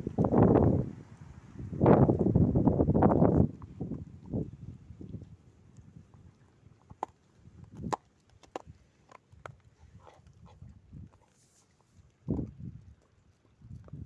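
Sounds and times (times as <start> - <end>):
dog crunching food: 5.1 - 14.0.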